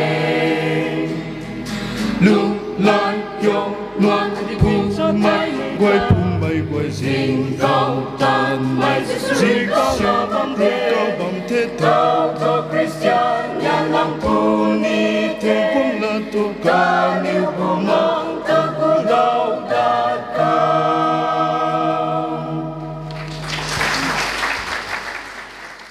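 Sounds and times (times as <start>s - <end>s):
choir singing a hymn: 0.0s - 23.1s
applause: 23.1s - 25.9s.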